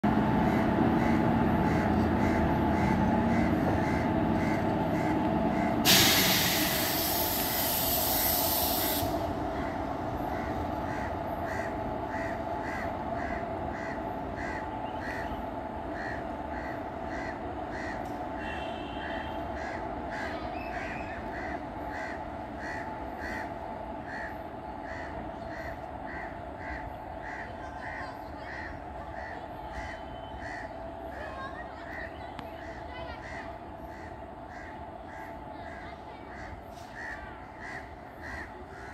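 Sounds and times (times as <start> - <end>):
loud air hiss: 5.8 - 9.3.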